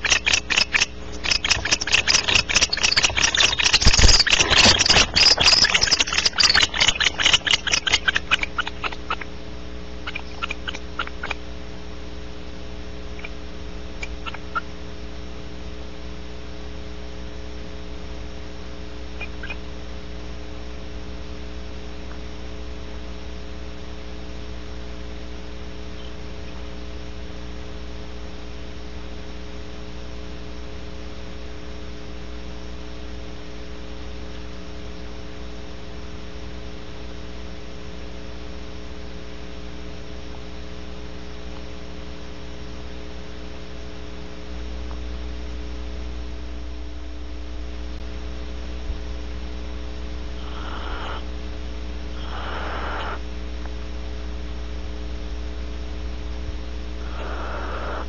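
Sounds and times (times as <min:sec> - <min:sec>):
owl raspy hisses: 0:00.0 - 0:09.2, 0:50.4 - 0:51.3, 0:52.1 - 0:53.3, 0:57.0 - 0:58.0
electrical mains hum: 0:00.0 - 0:58.0.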